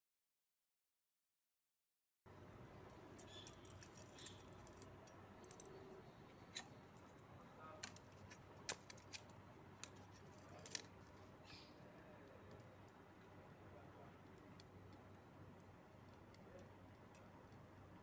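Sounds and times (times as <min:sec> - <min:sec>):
small metallic clicks: 0:03.1 - 0:07.2, 0:07.8 - 0:11.6.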